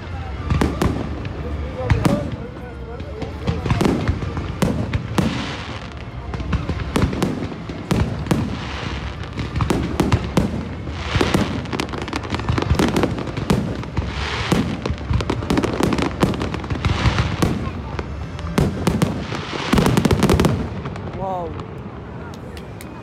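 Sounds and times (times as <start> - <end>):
fireworks crackling: 0.0 - 23.0.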